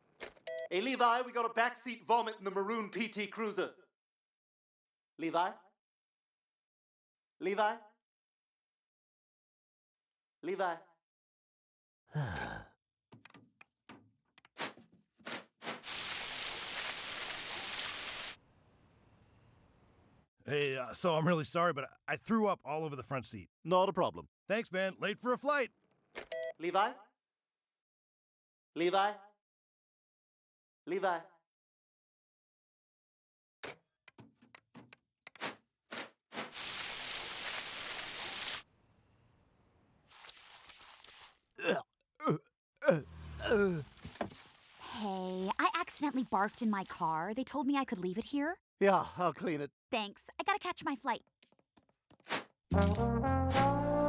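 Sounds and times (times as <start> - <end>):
hose nozzle spraying water: 15.8 - 18.4, 36.5 - 38.6, 40.1 - 41.4
knocks and clatters: 33.6 - 35.6.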